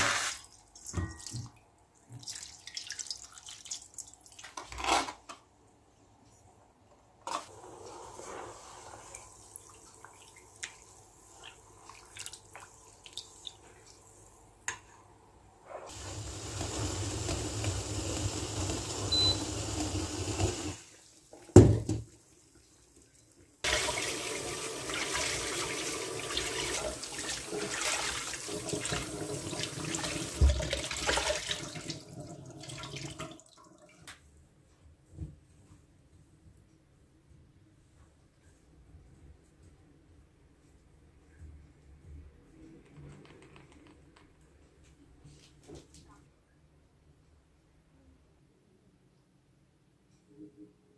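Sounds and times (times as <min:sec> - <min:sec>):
rags rinsed and wrung out: 0:07.2 - 0:14.4, 0:23.7 - 0:34.1.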